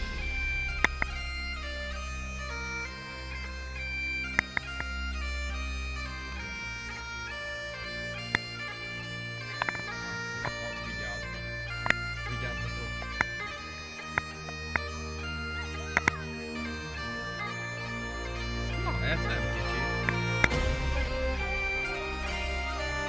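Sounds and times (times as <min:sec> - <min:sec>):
melody over drone tones: 0:00.0 - 0:23.0
sharp clicks: 0:04.2 - 0:05.0, 0:09.5 - 0:10.7, 0:11.7 - 0:16.4.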